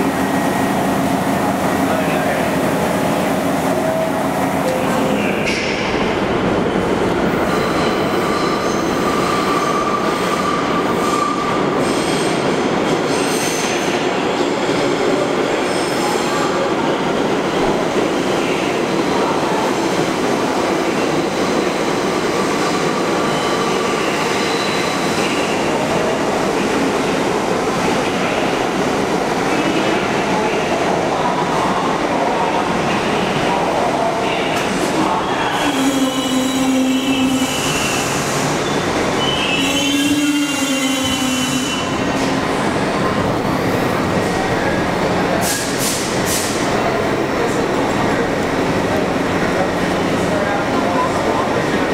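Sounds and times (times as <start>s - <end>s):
train wheels squealing: 7.5s - 12.4s, 22.6s - 25.6s, 35.3s - 42.0s.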